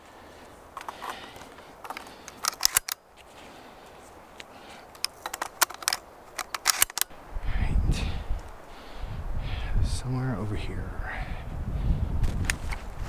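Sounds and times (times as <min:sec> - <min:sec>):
shotgun shells clicking into magazine: 0:01.8 - 0:03.0, 0:05.0 - 0:07.1.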